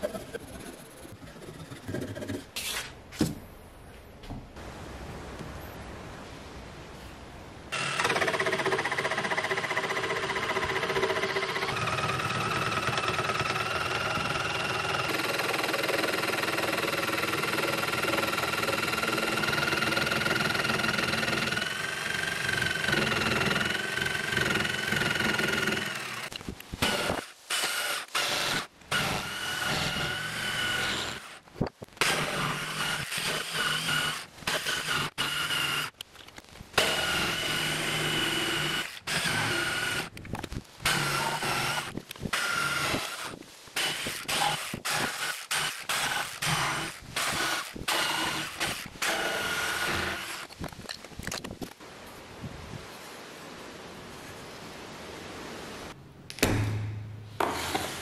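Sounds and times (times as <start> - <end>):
jigsaw sawing wood: 7.8 - 31.4, 32.0 - 35.9, 36.8 - 40.1, 40.9 - 50.5.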